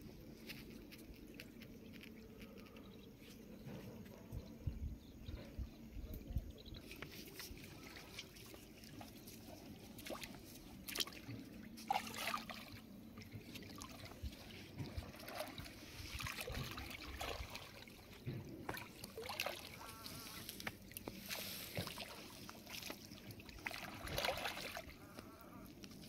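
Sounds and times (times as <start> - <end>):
water sloshing around wading legs: 6.8 - 26.0.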